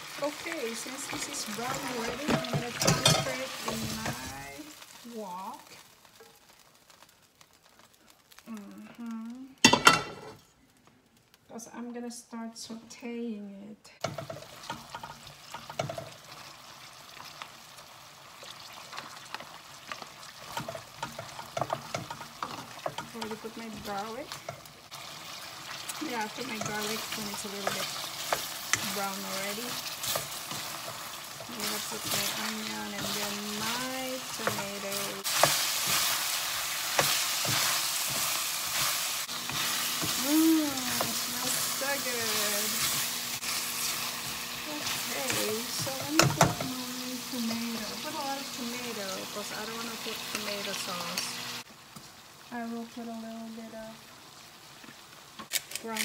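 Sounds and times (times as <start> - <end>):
meat sizzling in a wok: 0.0 - 10.4, 14.0 - 56.0
metal spatula scraping a pan: 1.0 - 4.4
metal spatula scraping and clicking: 18.9 - 24.7.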